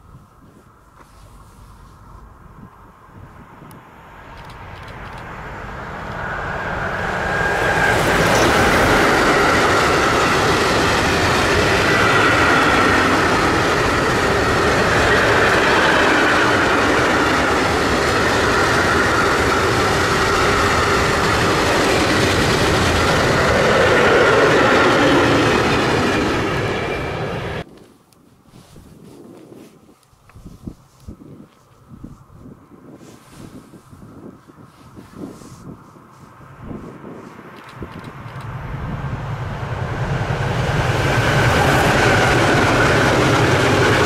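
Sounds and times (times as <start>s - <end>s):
train wheels on rails: 4.2s - 27.7s, 34.2s - 44.0s.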